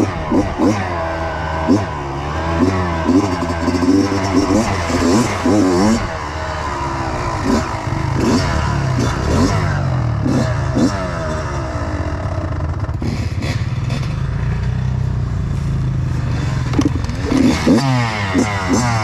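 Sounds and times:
dirt bike engine revving: 0:00.0 - 0:19.0
bike knocking and clattering: 0:16.7 - 0:17.8.

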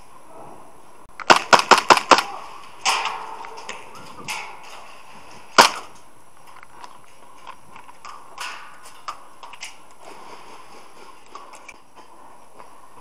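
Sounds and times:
airsoft gun shots: 0:01.2 - 0:03.4, 0:05.6 - 0:05.9.

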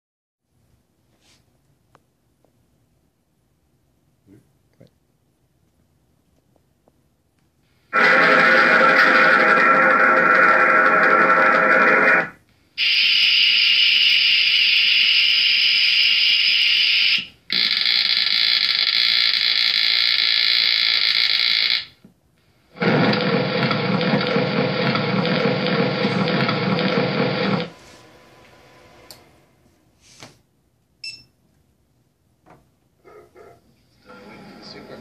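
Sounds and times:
excavator sound effects: 0:07.9 - 0:15.3, 0:22.8 - 0:29.8.

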